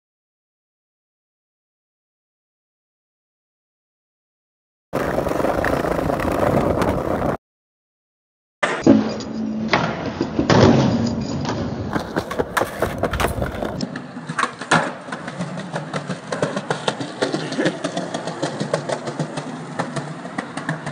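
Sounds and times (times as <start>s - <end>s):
skateboard clacks and knocks: 5.0s - 7.4s, 11.6s - 20.9s
skateboard wheels rolling on concrete: 5.0s - 7.4s, 9.8s - 20.9s.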